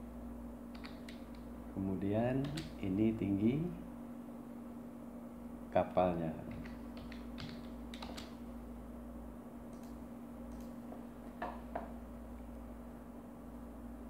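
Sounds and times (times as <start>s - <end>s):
low electrical hum: 0.0s - 14.0s
keyboard keystrokes: 0.8s - 1.4s, 2.4s - 2.8s, 6.5s - 8.4s
mouse clicks: 0.8s - 1.4s.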